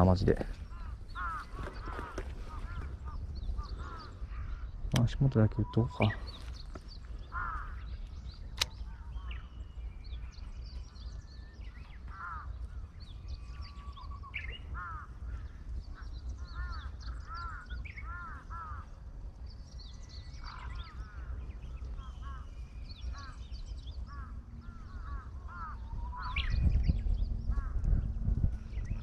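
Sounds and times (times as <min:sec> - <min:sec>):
small birds chirping: 0:00.0 - 0:29.0
crows cawing: 0:00.4 - 0:05.0, 0:05.9 - 0:08.2, 0:11.8 - 0:19.3, 0:20.4 - 0:26.5, 0:27.5 - 0:27.9
sharp click: 0:08.5 - 0:08.9.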